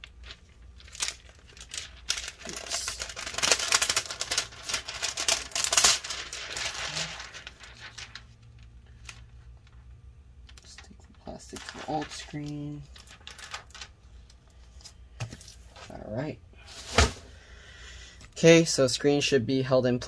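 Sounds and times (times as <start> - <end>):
plastic film crinkling: 0.0 - 16.0.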